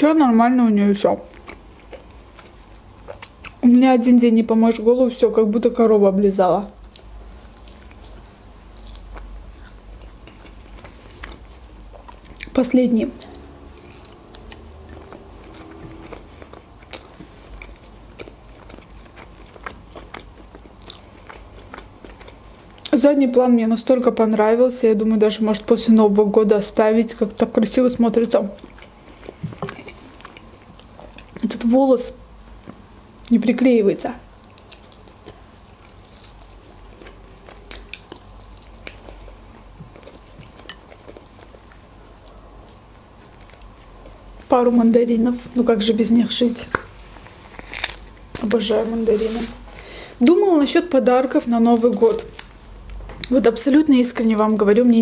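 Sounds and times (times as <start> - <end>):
biting and chewing: 6.8 - 23.0, 28.6 - 31.4, 34.4 - 44.4, 46.6 - 48.6.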